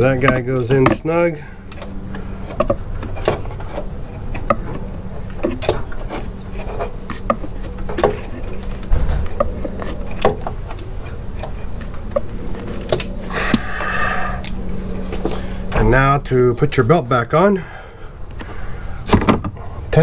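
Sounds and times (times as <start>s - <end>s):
hand tool clicks and metal knocks: 0.0s - 1.1s
low buzzing hum: 0.0s - 20.0s.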